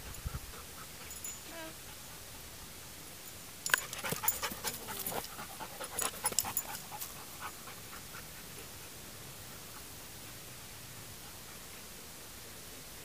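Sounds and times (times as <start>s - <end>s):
dog panting: 3.8s - 12.3s.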